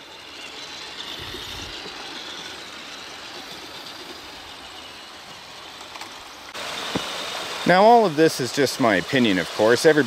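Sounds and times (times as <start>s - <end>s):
toy truck motor whining: 0.0s - 7.0s.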